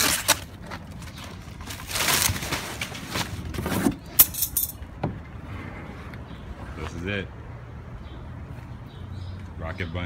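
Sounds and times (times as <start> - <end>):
plastic wrapping rustling: 0.0 - 3.9.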